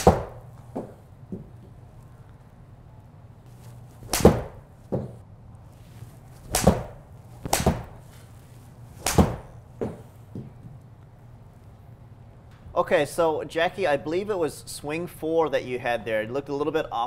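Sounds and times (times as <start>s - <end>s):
golf club hitting ball: 0.0s - 0.9s, 4.0s - 5.2s, 6.5s - 8.0s, 9.0s - 10.0s.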